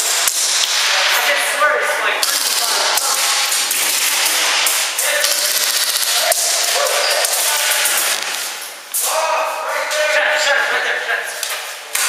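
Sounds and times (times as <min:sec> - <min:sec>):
airsoft gunfire cracks and clicks: 0:02.2 - 0:08.6.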